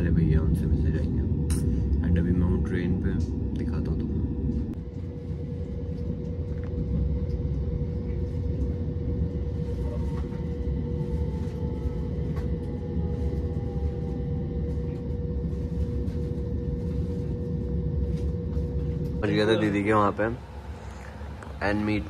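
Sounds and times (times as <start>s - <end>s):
constant hum: 0.0s - 22.0s
faint falling whine: 0.0s - 22.0s.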